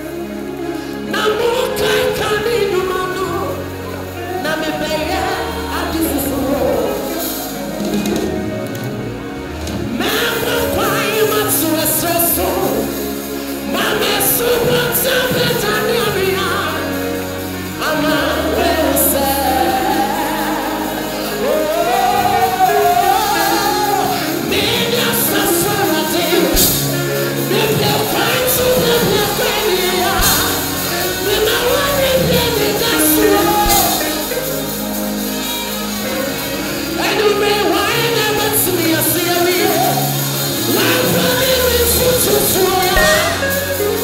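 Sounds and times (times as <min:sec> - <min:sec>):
band with bass and drums: 0:00.0 - 0:44.0
man singing into microphone: 0:09.9 - 0:34.9, 0:36.9 - 0:44.0.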